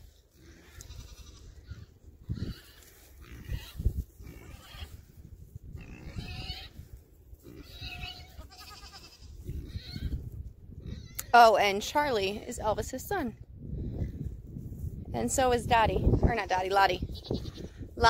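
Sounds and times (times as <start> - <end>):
goats bleating: 0.4 - 1.8, 7.4 - 10.1.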